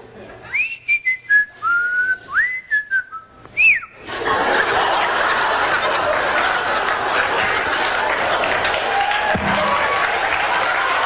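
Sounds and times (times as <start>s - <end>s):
man whistling a tune: 0.5s - 4.0s
audience laughter: 4.0s - 11.0s
applause: 6.0s - 11.0s.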